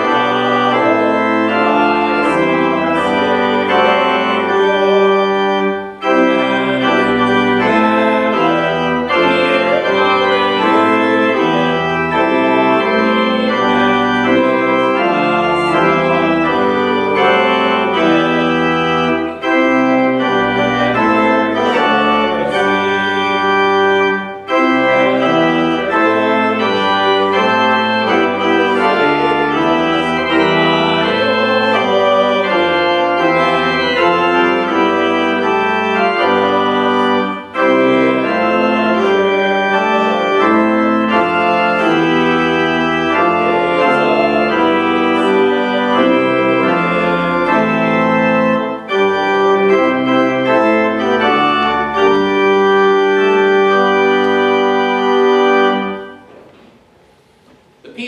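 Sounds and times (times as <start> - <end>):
church organ playing held chords: 0.0 - 58.0.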